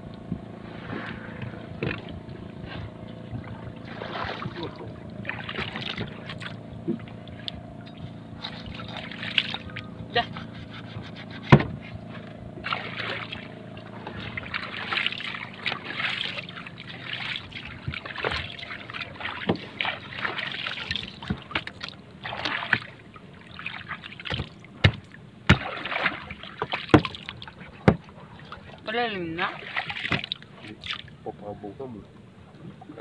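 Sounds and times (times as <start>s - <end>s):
water sloshing around boat: 0.0s - 33.0s
knocks on wooden deck: 11.5s - 11.8s, 27.8s - 28.0s.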